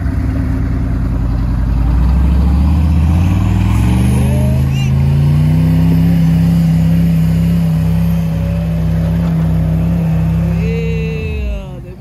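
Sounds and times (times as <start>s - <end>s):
engine at high revs under load: 1.9s - 10.6s.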